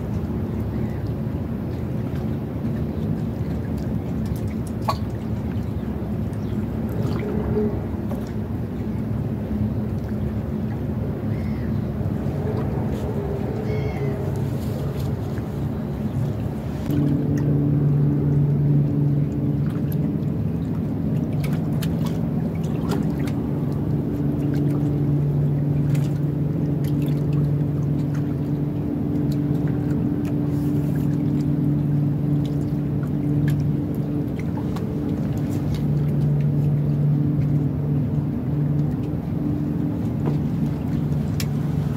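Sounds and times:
boat engine humming: 0.0 - 41.9.

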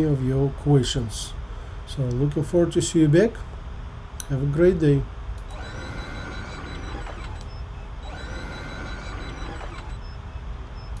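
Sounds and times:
low hum: 0.0 - 11.0
sliding door motor whine: 5.5 - 10.3.

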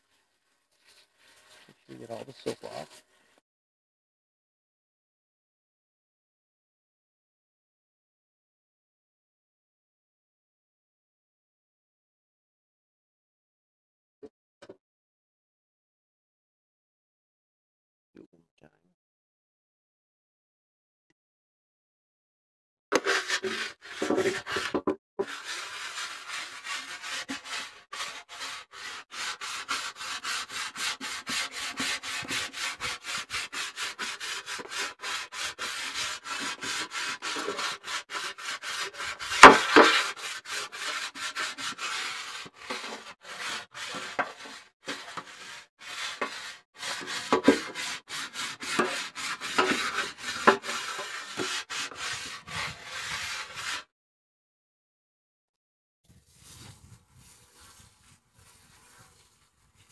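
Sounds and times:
stone scrubbing steel griddle: 23.0 - 53.9.

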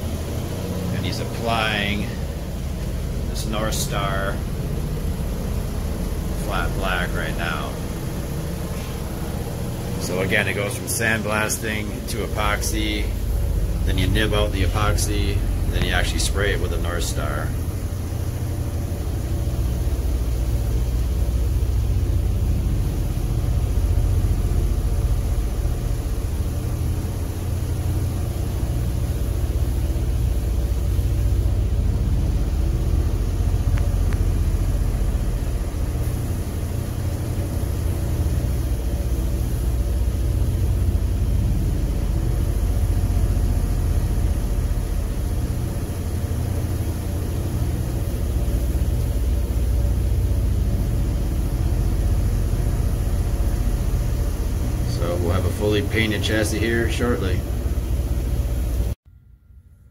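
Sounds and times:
ventilation low rumble: 0.0 - 59.9.

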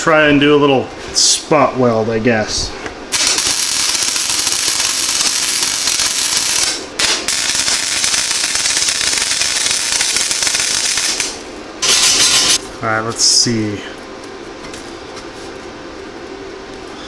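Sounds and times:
welding arc crackling and sizzling: 3.1 - 15.0.

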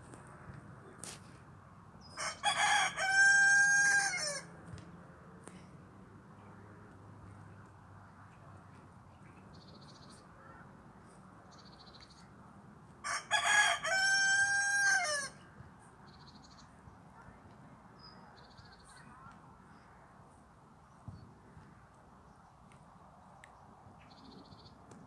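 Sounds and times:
rooster crowing: 2.2 - 4.5, 13.0 - 15.4.

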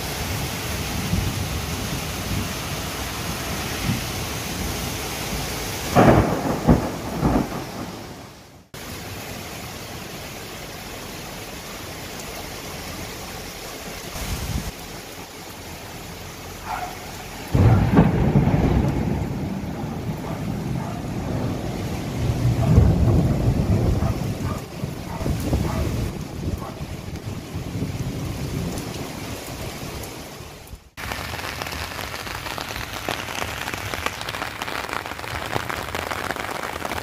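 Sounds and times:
torrential rain: 0.0 - 37.0
loud thunder claps: 5.9 - 8.3, 17.5 - 26.7.

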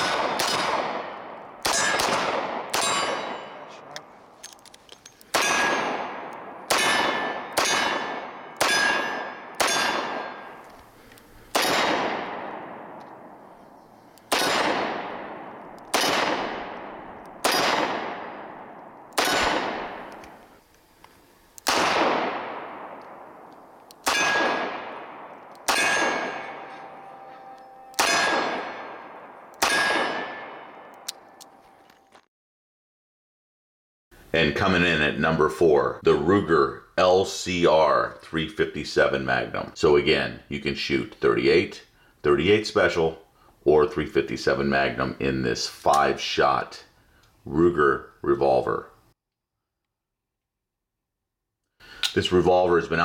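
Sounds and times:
revolver gunshots: 0.0 - 3.8, 5.3 - 10.6, 11.5 - 13.5, 14.3 - 20.4, 21.6 - 31.4.

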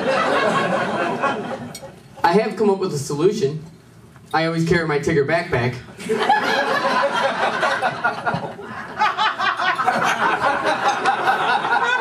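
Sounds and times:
audience laughing: 0.0 - 2.0, 6.0 - 12.0.

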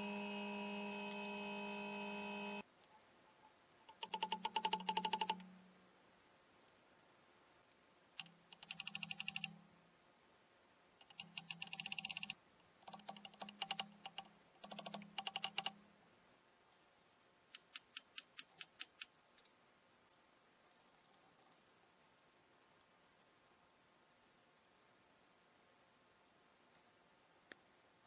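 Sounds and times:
low hum: 0.0 - 2.6
rapid clicking: 3.9 - 5.4, 8.2 - 9.5, 11.0 - 15.8.

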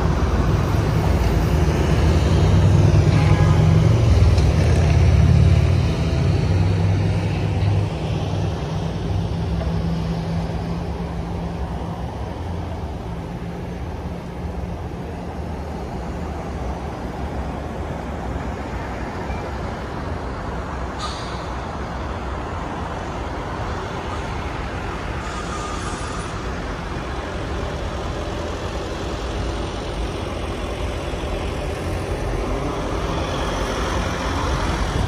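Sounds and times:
car road and traffic noise: 0.0 - 35.0
short hisses: 25.2 - 26.4.

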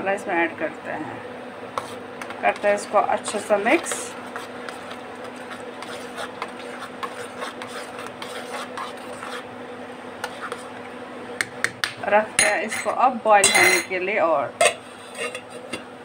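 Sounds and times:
boiling water bubbling: 1.2 - 11.0
spoon scraping a pot: 1.7 - 9.5, 10.2 - 10.8, 12.4 - 13.9, 14.6 - 15.9.

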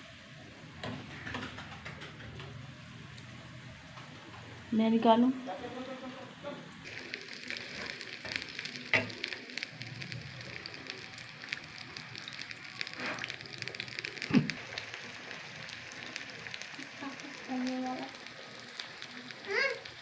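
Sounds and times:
potato slices frying: 4.8 - 20.0.

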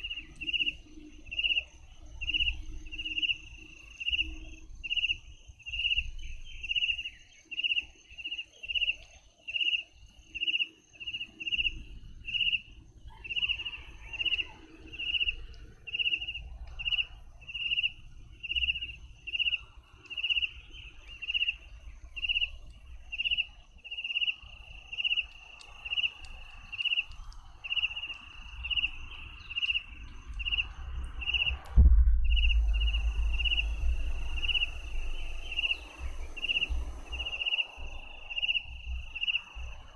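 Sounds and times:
cricket chirping: 0.0 - 39.9
low rumble: 28.7 - 39.9.

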